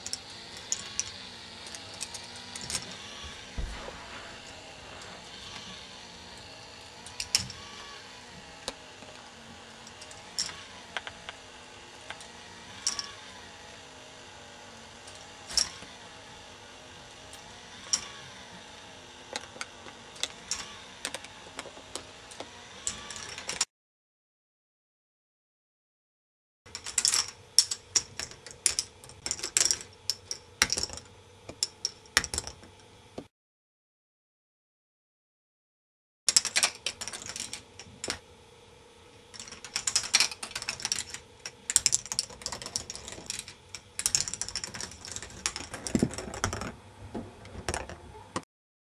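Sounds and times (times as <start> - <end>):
plastic balls clacking on track: 0.0 - 3.0, 6.4 - 7.9, 8.6 - 11.4, 12.0 - 13.3, 19.3 - 23.7, 26.7 - 32.8, 36.3 - 38.2, 39.3 - 48.4
machine gearbox humming: 0.0 - 23.7, 36.3 - 48.4
faint steady hum: 36.3 - 48.4.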